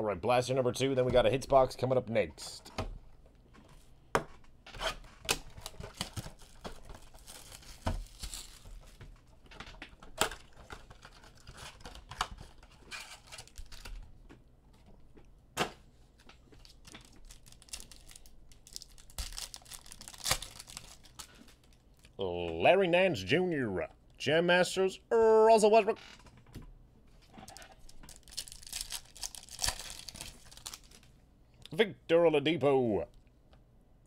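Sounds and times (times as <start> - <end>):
foil packs crinkling: 5.4 - 9.0, 10.2 - 14.1, 16.6 - 22.1, 27.4 - 31.1
sharp snaps and rips: 16.7 - 22.2, 27.5 - 31.0.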